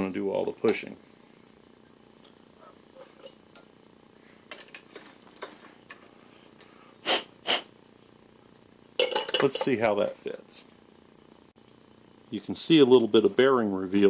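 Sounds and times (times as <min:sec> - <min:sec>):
short hissing puffs: 0:06.2 - 0:07.8.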